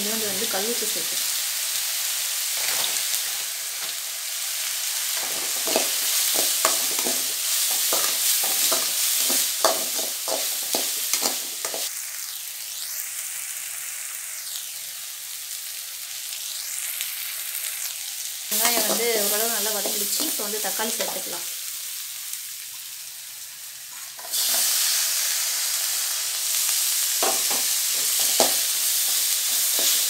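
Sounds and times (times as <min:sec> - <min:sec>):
onions sizzling in oil: 0:00.0 - 0:30.0.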